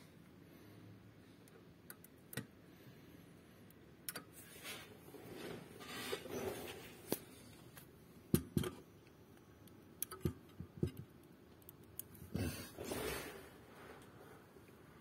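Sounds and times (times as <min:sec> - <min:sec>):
hardware clicks and taps: 0:07.1 - 0:12.2.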